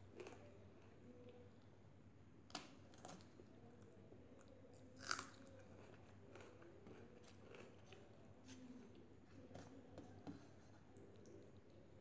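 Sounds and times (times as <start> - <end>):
person chewing and crunching food: 4.4 - 9.5.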